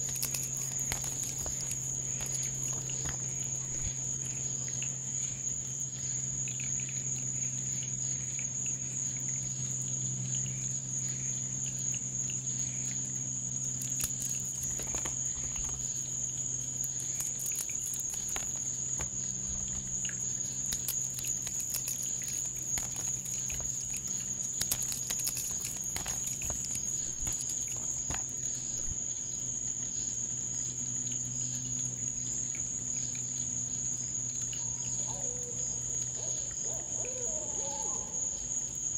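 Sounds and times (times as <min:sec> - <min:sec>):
faint clicks and crackles: 0:00.0 - 0:05.0, 0:13.6 - 0:29.0
crickets trilling: 0:00.0 - 0:38.9
low steady hum: 0:00.0 - 0:38.9.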